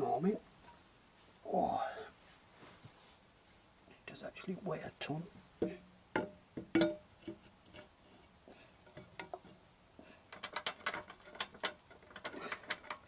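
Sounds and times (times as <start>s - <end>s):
metal clicking and clinking: 10.3s - 13.0s.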